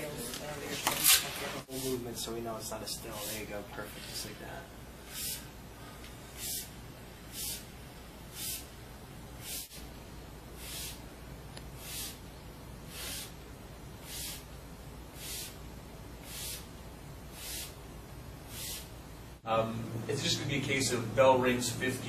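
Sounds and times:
steady low hum: 0.0 - 22.0
short hiss: 7.3 - 7.7, 18.5 - 19.0.

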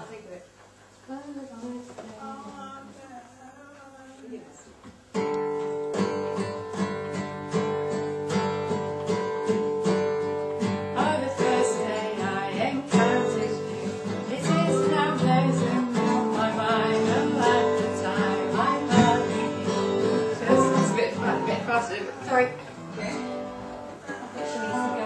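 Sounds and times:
acoustic guitar strumming: 5.1 - 25.0
person singing: 11.0 - 23.4, 24.1 - 25.0.

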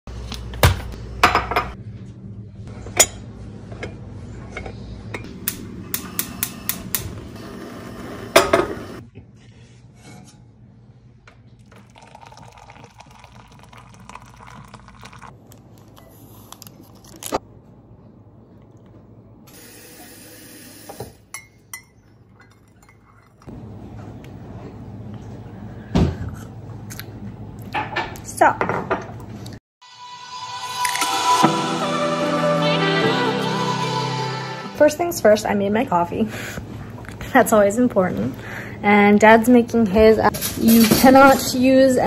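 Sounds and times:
coffee pouring into mug: 11.6 - 17.3
spoon stirring in mug: 11.9 - 17.0, 21.4 - 23.5
mugs and spoons clinking: 21.3 - 23.5.

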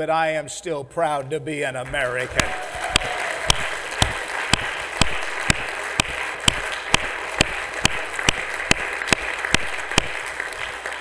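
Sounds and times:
crowd applauding: 1.8 - 11.0
loud single claps: 2.3 - 11.0.

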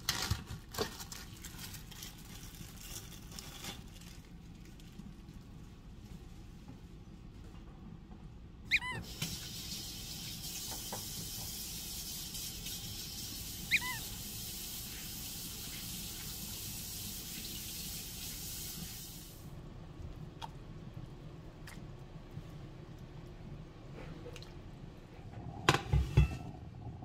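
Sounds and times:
dog whining: 8.7 - 9.1, 13.6 - 14.2
water running from tap: 9.0 - 19.4.

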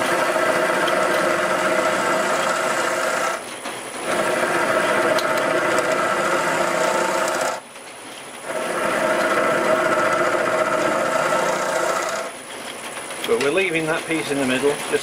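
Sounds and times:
gouge cutting wood on a lathe: 0.0 - 7.6, 8.4 - 12.4.

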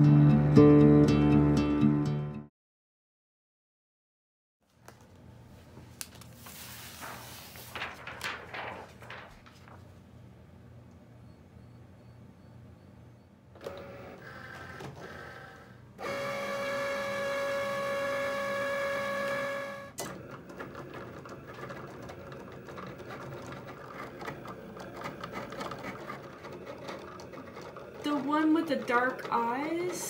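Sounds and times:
cutting machine motor whine: 13.6 - 20.7
motor whirring and ticking: 13.6 - 30.0.

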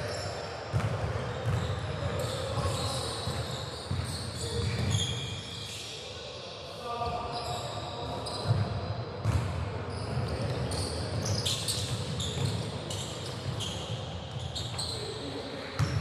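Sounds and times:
sneaker squeaks: 0.0 - 16.0
basketball bouncing: 9.2 - 9.5.

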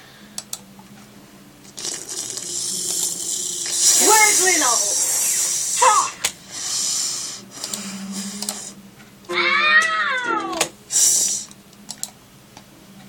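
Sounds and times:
scattered clicks: 0.4 - 1.0, 7.6 - 8.6, 11.4 - 12.7
hiss: 1.8 - 7.4, 10.9 - 11.5
meow-like cry: 9.3 - 10.7.

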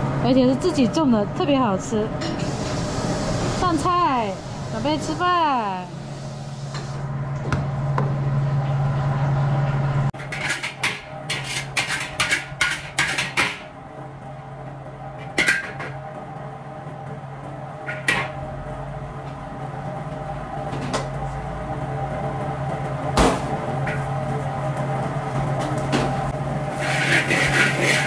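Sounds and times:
low hum of kitchen equipment: 0.0 - 28.0
metal spatula scraping a wok: 10.2 - 13.1, 26.7 - 28.0.

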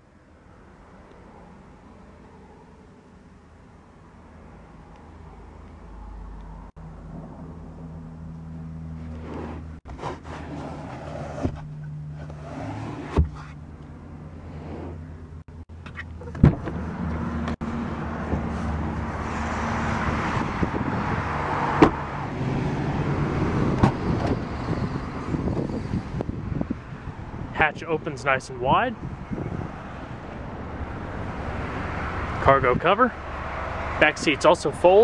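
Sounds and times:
road traffic passing: 0.0 - 35.0
car door knocks and clunks: 13.1 - 13.5, 16.3 - 16.8, 21.8 - 22.0.

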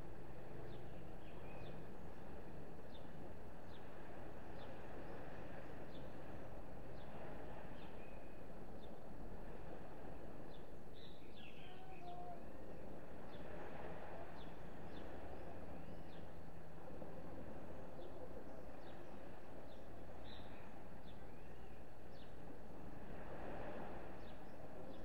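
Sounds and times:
low background noise: 0.0 - 25.0
sparrows chirping: 0.6 - 1.9, 10.5 - 12.2, 18.0 - 22.4.

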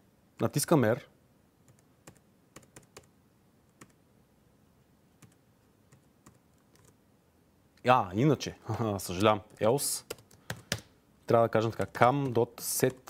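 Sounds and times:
laptop keyboard clicks: 10.1 - 10.9.

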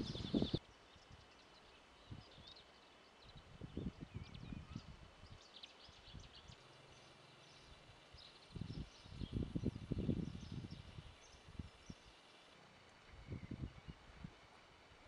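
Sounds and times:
wind buffeting microphone: 0.0 - 1.2, 3.3 - 5.4, 8.4 - 12.1, 13.1 - 14.4
small birds chirping: 0.0 - 15.0.

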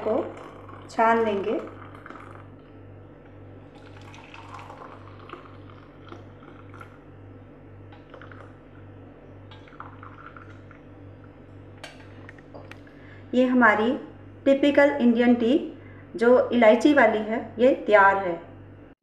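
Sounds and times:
low pulsing hum: 0.0 - 19.0
tea dripping into a mug: 0.1 - 2.5, 3.7 - 7.1, 7.9 - 8.8, 9.5 - 11.4.

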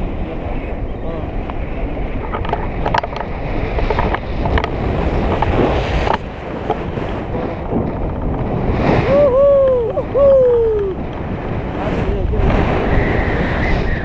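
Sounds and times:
wind buffeting microphone: 0.0 - 14.0
person crying out: 9.0 - 11.0.

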